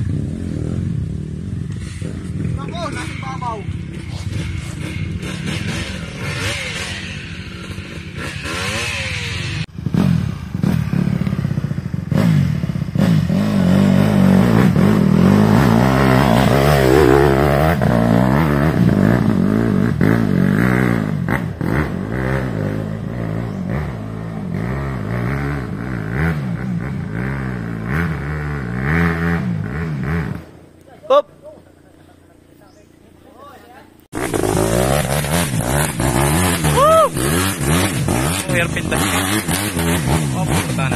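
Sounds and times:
dirt bike engine revving hard: 0.0 - 30.4, 34.1 - 40.9
faint engine revving: 0.0 - 40.9.

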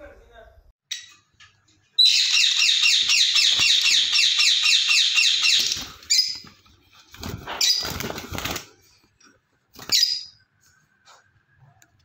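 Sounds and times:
lovebird chirping: 2.0 - 6.4.

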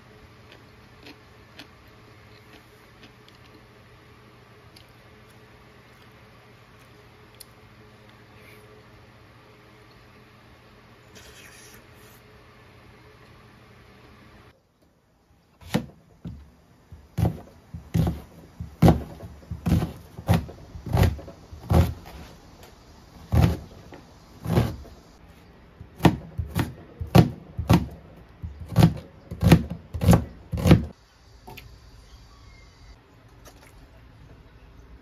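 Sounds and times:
knife chopping on cutting board: 15.6 - 16.4, 17.0 - 22.2, 23.3 - 23.8, 24.4 - 25.0, 25.9 - 30.9.

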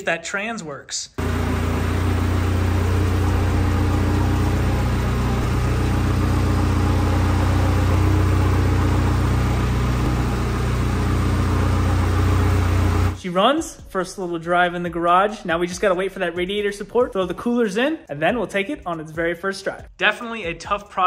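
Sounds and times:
car engine idling: 1.2 - 13.2.

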